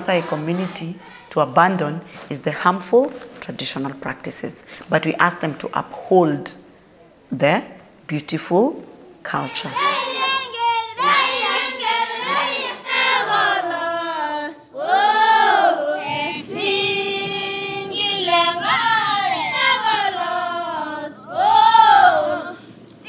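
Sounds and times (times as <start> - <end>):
girls singing together: 0.0 - 2.1, 9.4 - 22.8.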